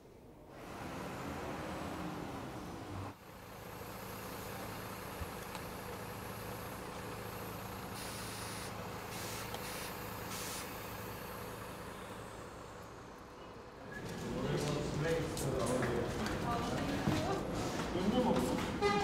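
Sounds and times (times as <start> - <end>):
bus engine idling: 0.2 - 19.0
air hissing: 7.3 - 12.3.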